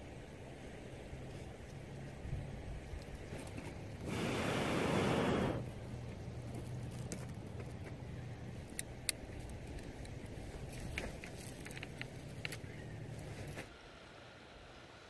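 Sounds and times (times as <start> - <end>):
burning wood crackling: 1.2 - 13.7
person blowing onto fire: 4.0 - 5.6.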